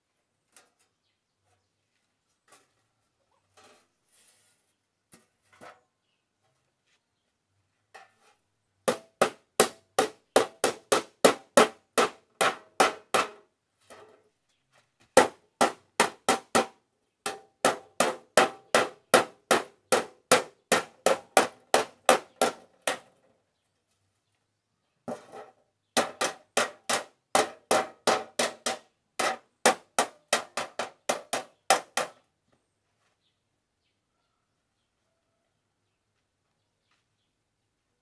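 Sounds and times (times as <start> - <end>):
hammer striking steel plate: 8.9 - 13.4, 15.2 - 23.1, 26.0 - 32.2.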